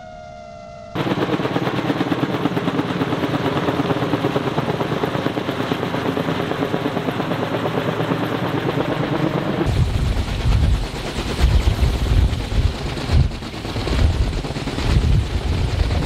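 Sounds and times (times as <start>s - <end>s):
helicopter rotors chopping: 1.0s - 16.0s.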